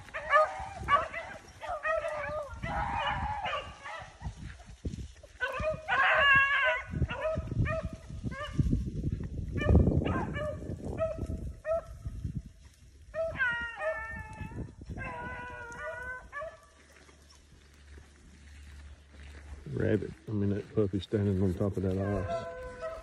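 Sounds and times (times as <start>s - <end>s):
dogs baying: 0.0s - 4.5s, 5.3s - 8.6s, 9.6s - 12.0s, 13.1s - 17.2s, 21.8s - 23.0s
low rumbling microphone noise: 0.0s - 16.4s.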